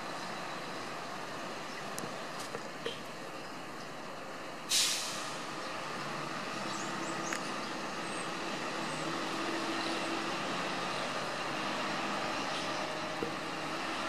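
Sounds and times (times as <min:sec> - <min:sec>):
rail trolley engine hum: 0:00.0 - 0:14.0
sharp hiss: 0:04.7 - 0:05.5.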